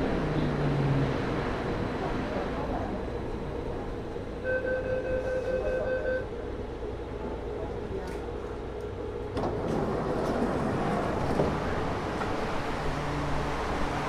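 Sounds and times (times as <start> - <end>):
train car hum: 0.0 - 14.0.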